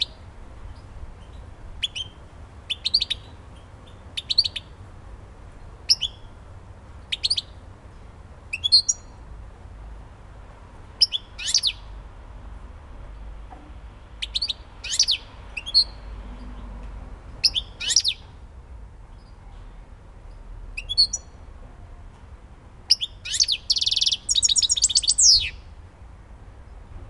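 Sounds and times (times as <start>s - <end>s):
goldfinch singing: 0.0s - 4.7s, 5.9s - 6.3s, 8.5s - 9.1s, 11.0s - 11.9s, 14.2s - 16.1s, 17.4s - 18.3s, 20.8s - 21.3s, 22.9s - 25.6s.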